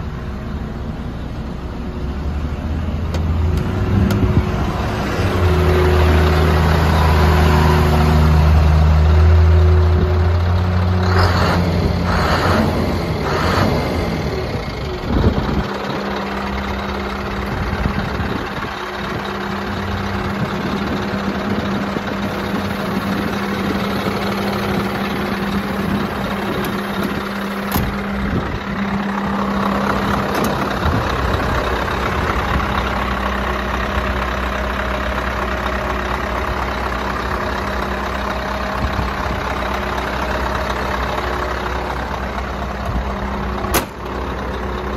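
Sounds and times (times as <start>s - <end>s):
diesel engine idling: 0.0s - 44.9s
deep low rumble: 3.4s - 34.7s.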